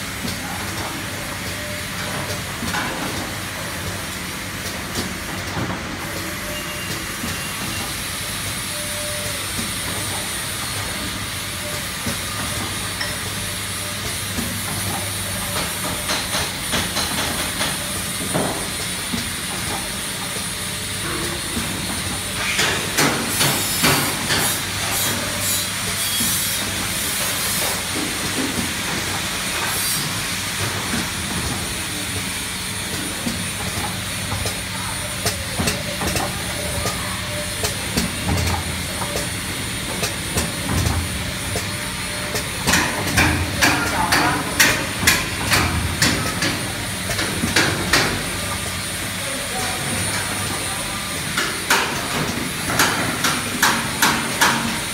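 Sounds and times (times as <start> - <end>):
packing machine motor hum: 24.5 - 54.9
mechanical clicks and clacks: 37.6 - 48.6.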